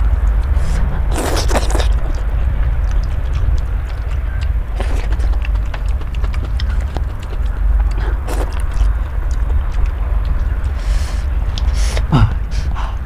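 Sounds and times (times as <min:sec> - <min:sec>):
steady low hum: 0:00.0 - 0:13.0
chewing and mouth clicks: 0:00.2 - 0:12.5
noodle slurp: 0:00.6 - 0:02.2, 0:04.7 - 0:08.9.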